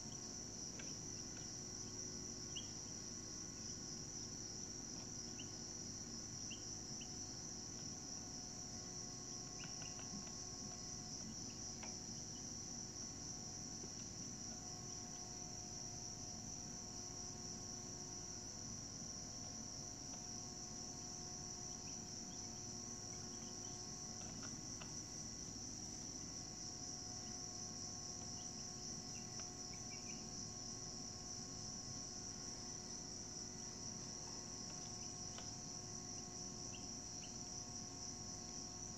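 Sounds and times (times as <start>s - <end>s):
high-pitched insect trill: 0.0s - 38.9s.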